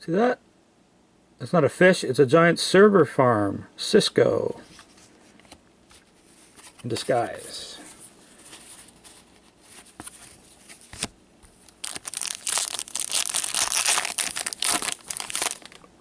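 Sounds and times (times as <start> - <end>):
foil wrapper crinkling: 8.9 - 16.0.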